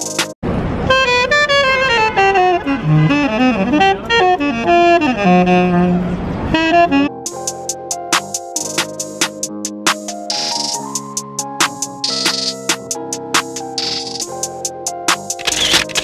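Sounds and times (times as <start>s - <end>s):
saxophone solo melody: 0.8s - 7.5s.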